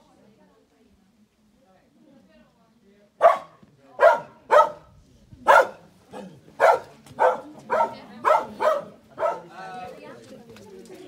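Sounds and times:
dog barking: 3.2s - 4.9s, 5.5s - 9.5s.

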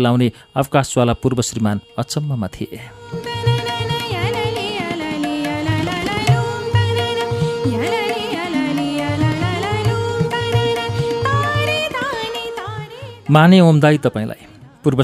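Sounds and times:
wavering melody: 2.9s - 13.6s.

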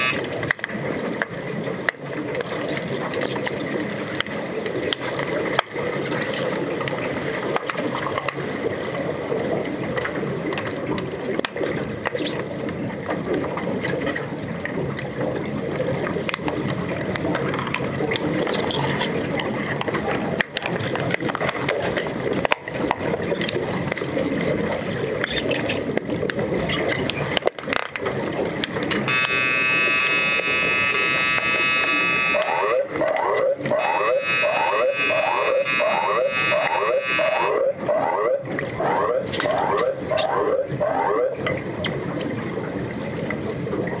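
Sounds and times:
underwater buzzer: 0.0s - 0.3s, 29.1s - 33.0s, 33.7s - 37.8s
underwater bubbles and splashing: 0.0s - 44.0s.

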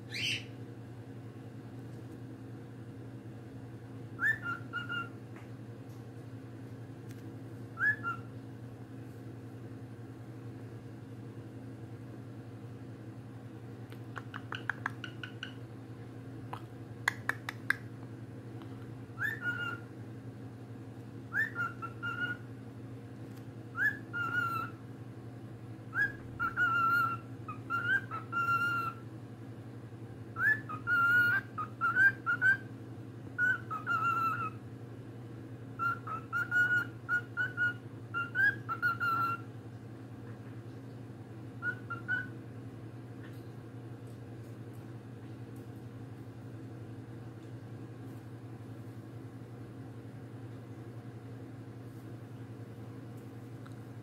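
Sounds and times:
steady low hum: 0.0s - 54.0s
cockatiel whistling: 0.1s - 0.5s, 4.2s - 5.2s, 7.8s - 8.3s, 19.2s - 19.8s, 21.3s - 22.4s, 23.7s - 24.8s, 25.9s - 29.0s, 30.4s - 32.7s, 33.4s - 34.6s, 35.8s - 39.5s, 41.6s - 42.4s.

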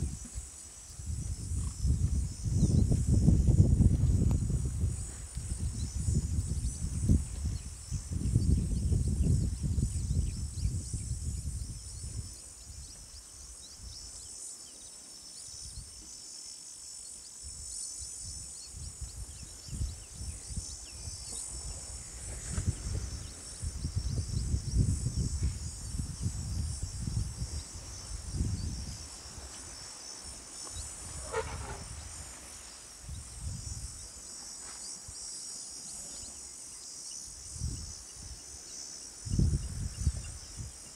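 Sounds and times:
high-pitched insect chorus: 0.0s - 40.9s
low rumbling gusts: 1.0s - 12.2s.

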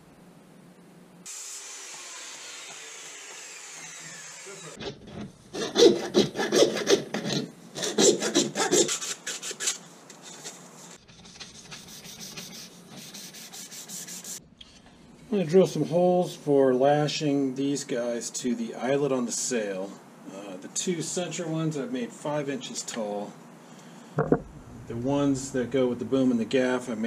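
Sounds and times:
blade and sandpaper scraping pipe: 5.6s - 14.4s.

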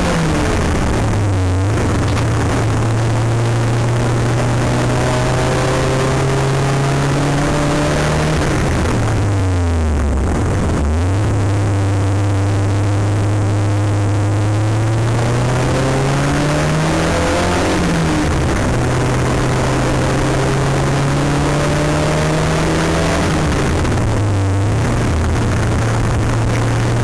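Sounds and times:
race car engine accelerating: 0.0s - 27.0s
wind and road noise: 0.0s - 27.0s.

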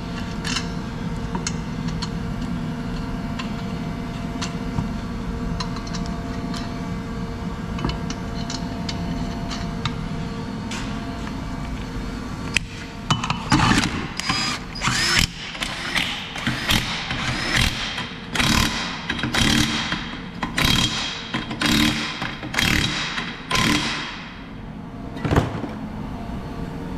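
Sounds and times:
power tool bursts: 13.6s - 19.8s.

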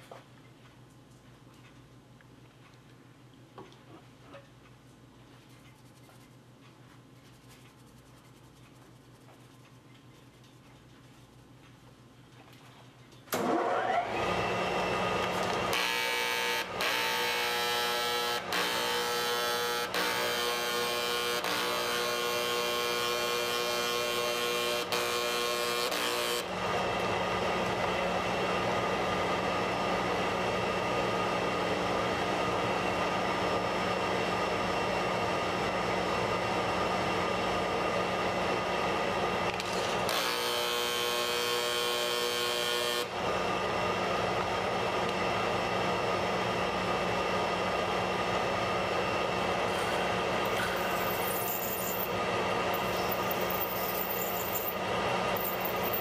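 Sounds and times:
machine humming and whining: 13.4s - 56.0s.

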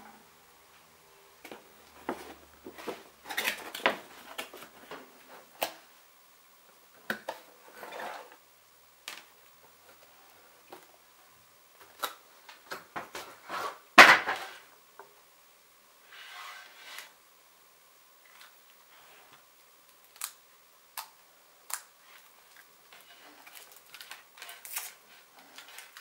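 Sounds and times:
cardboard packaging rustling: 2.0s - 5.5s, 23.0s - 26.0s.

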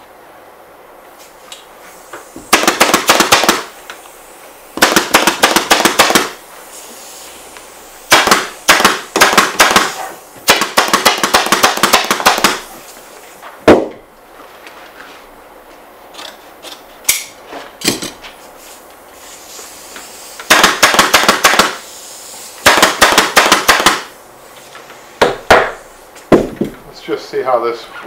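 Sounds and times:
pneumatic staple gun firing: 2.4s - 4.0s, 4.8s - 6.4s, 8.1s - 12.7s, 20.4s - 21.9s, 22.6s - 24.1s
loud knock: 13.6s - 14.0s, 25.2s - 26.8s.

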